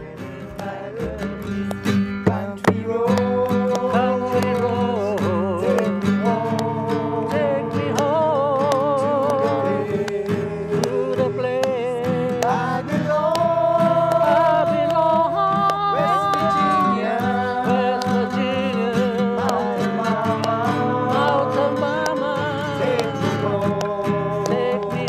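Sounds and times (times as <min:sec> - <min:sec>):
acoustic guitar strumming: 0:00.0 - 0:25.0
group singing: 0:00.0 - 0:25.0.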